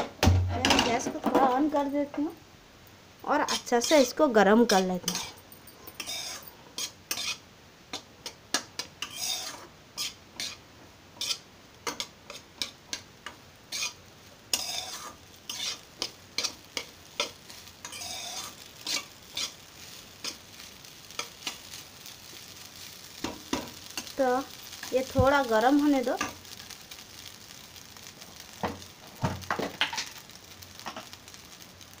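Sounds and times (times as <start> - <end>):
metal spatula scraping a pan: 3.4 - 7.4, 8.2 - 10.6, 11.2 - 26.8.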